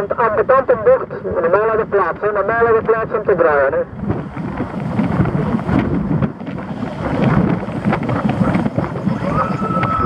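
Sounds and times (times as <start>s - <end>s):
wind buffeting microphone: 1.0s - 10.0s
car road and engine noise: 2.8s - 10.0s.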